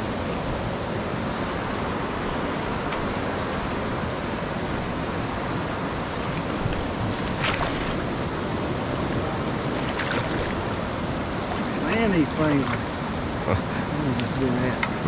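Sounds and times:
river rushing: 0:00.0 - 0:15.0.

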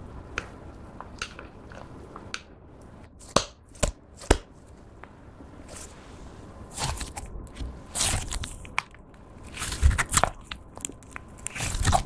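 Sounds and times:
slime crackling and popping: 0:06.7 - 0:12.0.

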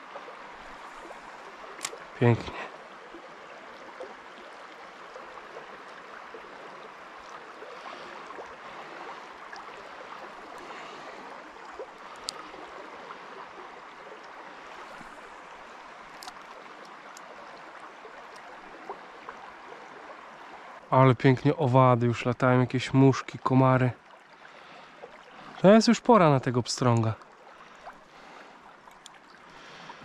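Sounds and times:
small river flowing: 0:00.0 - 0:30.0
faint sharp clicks: 0:01.8 - 0:02.1, 0:12.1 - 0:12.4, 0:16.1 - 0:17.3, 0:28.9 - 0:29.2.

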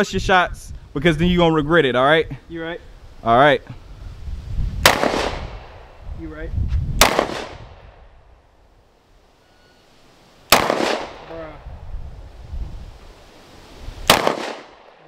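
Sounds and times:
pistol shots: 0:04.8 - 0:05.8, 0:07.0 - 0:07.7, 0:10.5 - 0:11.3, 0:14.1 - 0:15.0.

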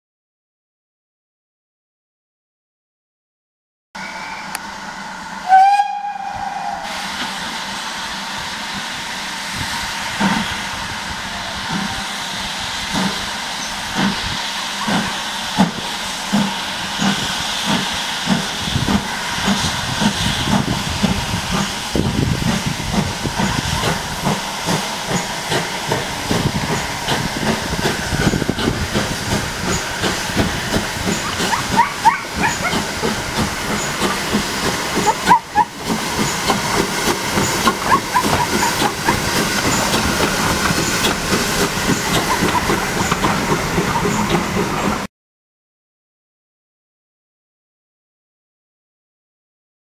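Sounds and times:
steam exhaust beat: 0:04.0 - 0:45.1
steam hissing: 0:04.0 - 0:45.1
train coaches rolling past: 0:04.0 - 0:45.1.

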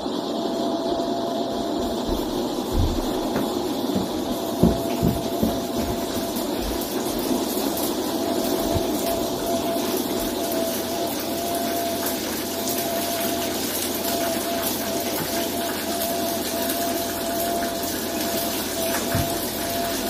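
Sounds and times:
airliner cabin drone: 0:00.0 - 0:20.0
constant whining tone: 0:00.0 - 0:20.0.

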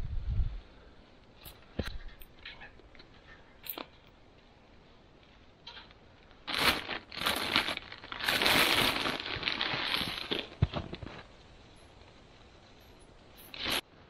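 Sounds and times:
plastic bag crinkling: 0:06.4 - 0:11.4, 0:13.4 - 0:13.8.

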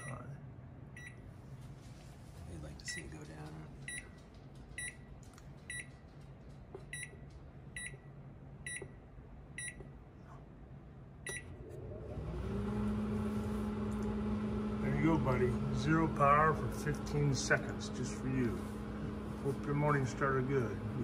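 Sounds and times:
microwave oven humming: 0:00.0 - 0:21.0
microwave keypad beeping: 0:01.0 - 0:01.2, 0:06.9 - 0:07.2, 0:07.8 - 0:08.1, 0:08.7 - 0:09.0, 0:09.6 - 0:09.9, 0:11.3 - 0:11.6.

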